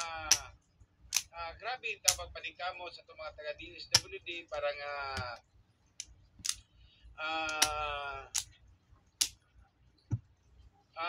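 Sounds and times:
sharp clicks: 0:06.0 - 0:06.6.

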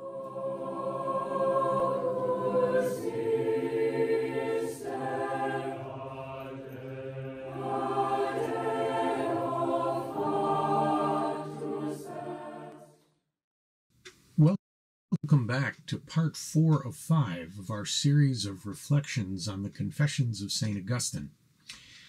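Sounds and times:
choir singing chant: 0:00.0 - 0:13.0.

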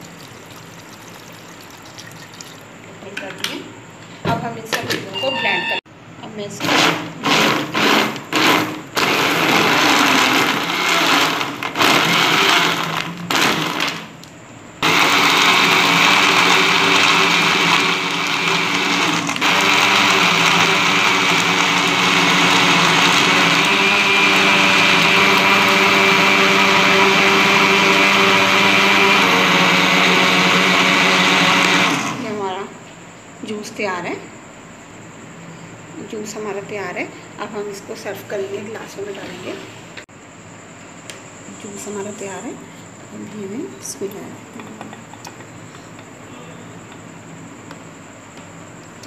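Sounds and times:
electric blender running: 0:06.6 - 0:14.1, 0:14.8 - 0:32.4.

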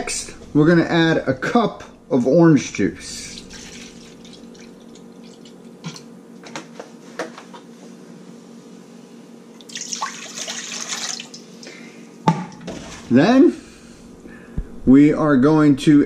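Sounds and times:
juice pouring into metal bowl: 0:03.2 - 0:05.6, 0:09.6 - 0:11.4.

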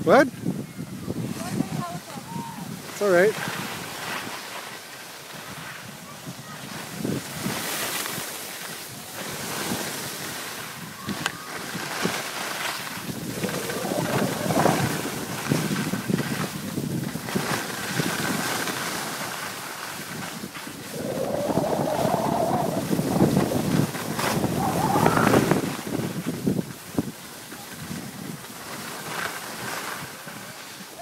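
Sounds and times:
wind buffeting microphone: 0:00.4 - 0:04.1, 0:08.9 - 0:28.5
skis scraping over snow: 0:02.8 - 0:05.9, 0:06.6 - 0:10.7, 0:11.5 - 0:30.8.

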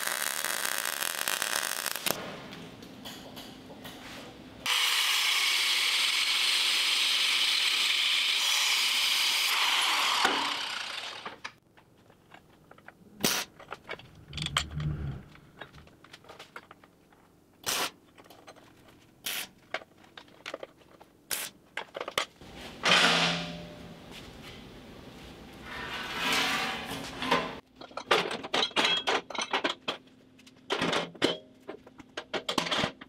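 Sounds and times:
welding arc crackling: 0:00.0 - 0:02.2.

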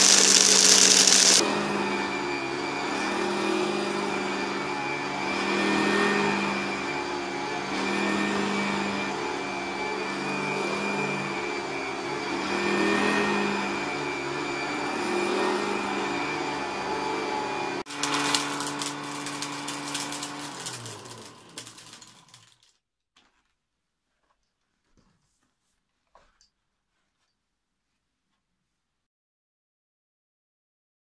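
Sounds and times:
vacuum cleaner clattering: 0:00.0 - 0:01.5, 0:13.0 - 0:22.7
vacuum cleaner running on carpet: 0:00.0 - 0:22.6.

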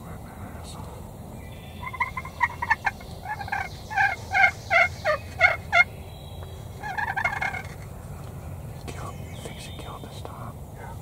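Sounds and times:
turkey yelping: 0:01.8 - 0:05.9, 0:06.8 - 0:07.8.

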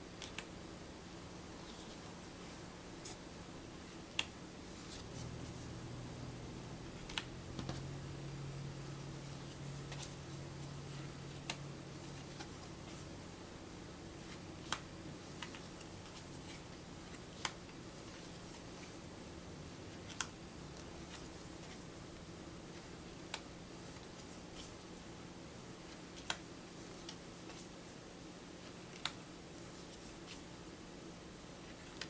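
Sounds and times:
faint steady hum: 0:00.0 - 0:32.0
playing cards snapping: 0:00.2 - 0:00.5, 0:07.0 - 0:07.8.

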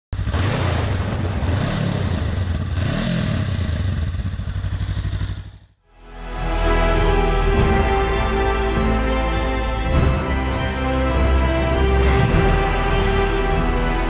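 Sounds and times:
motorcycle engine revving: 0:01.3 - 0:05.8
music: 0:05.8 - 0:14.0.

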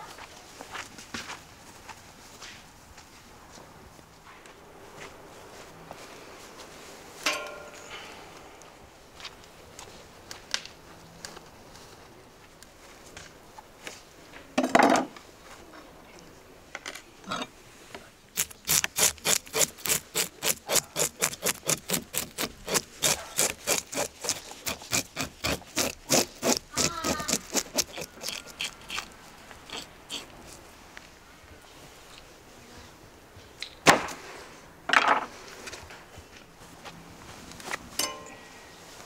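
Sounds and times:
fish scaler scraping scales: 0:18.4 - 0:30.6.

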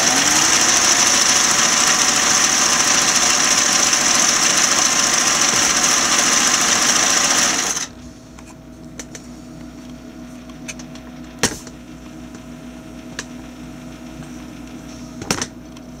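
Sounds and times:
sewing machine running: 0:00.0 - 0:08.0.

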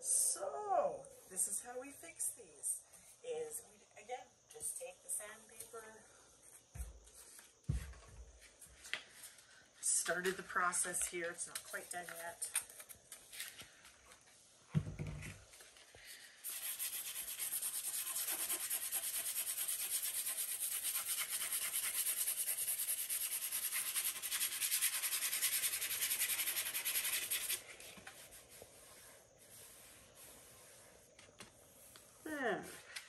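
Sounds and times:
sandpaper sanding back and forth: 0:16.4 - 0:31.1.

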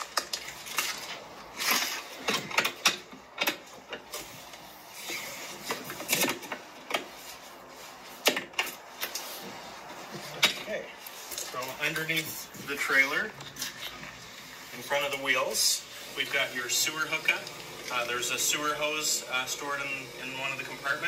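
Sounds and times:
cable clattering and rubbing: 0:00.0 - 0:14.4.

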